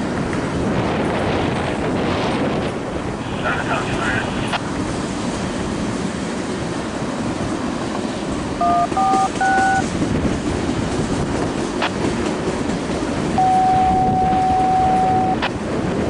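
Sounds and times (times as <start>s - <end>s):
paired radio beeps: 8.6s - 9.8s, 13.4s - 15.5s
steady beep tone: 8.6s - 9.8s, 13.4s - 15.4s.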